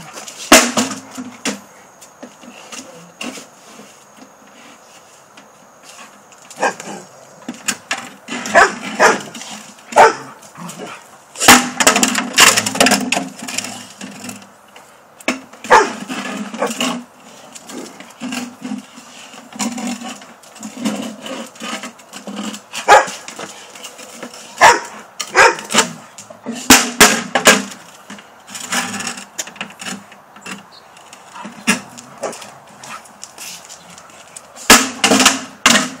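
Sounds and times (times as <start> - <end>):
dogs barking: 6.6 - 7.1, 8.5 - 9.3, 9.9 - 11.0, 15.6 - 16.0, 22.8 - 23.2, 24.6 - 25.8.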